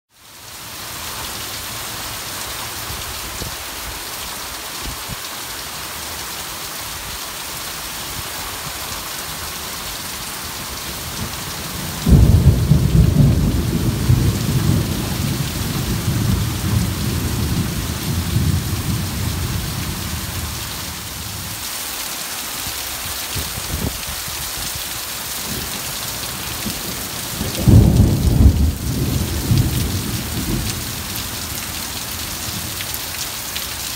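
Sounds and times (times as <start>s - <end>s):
heavy rain pouring: 0.2s - 33.9s
thunder rumbling: 11.2s - 21.5s, 26.4s - 32.8s.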